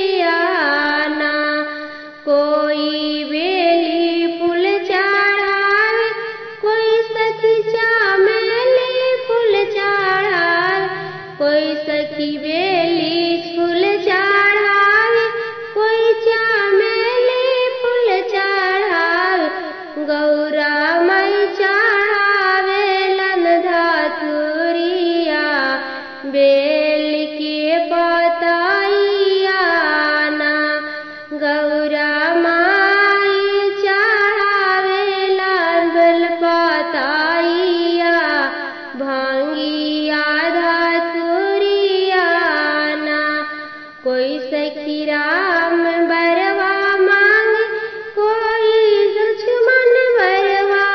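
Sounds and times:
woman singing folk song: 0.0s - 50.9s.

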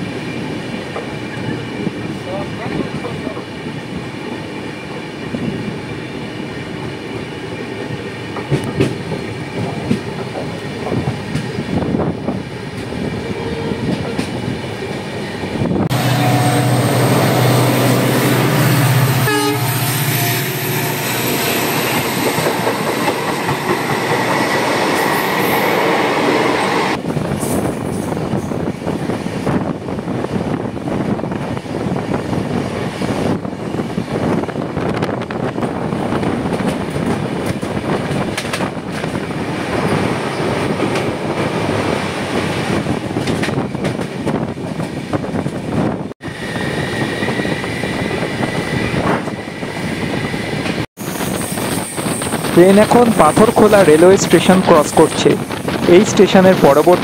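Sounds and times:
passing train: 0.0s - 57.0s
train wheels clicking over joints: 8.2s - 13.0s, 21.7s - 26.4s, 34.7s - 45.7s
locomotive engine droning: 15.7s - 24.7s
train horn: 15.9s - 22.0s.

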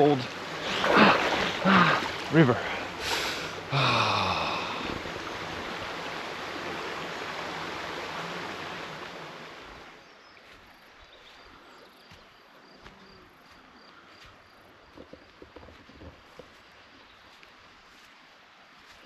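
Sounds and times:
river water rushing: 0.0s - 10.0s.

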